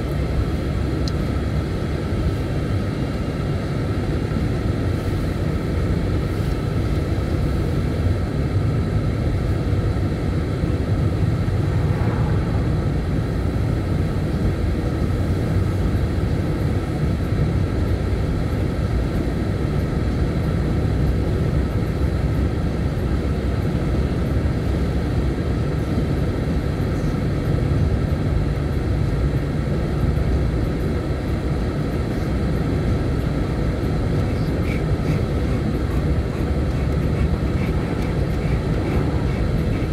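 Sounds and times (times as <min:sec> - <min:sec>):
vehicle rumble: 0:00.0 - 0:39.9.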